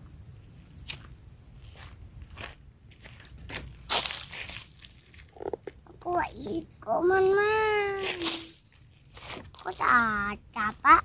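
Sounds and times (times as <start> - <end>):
leaves rustling and crunching: 1.7 - 10.4
crisp snaps: 8.0 - 9.9.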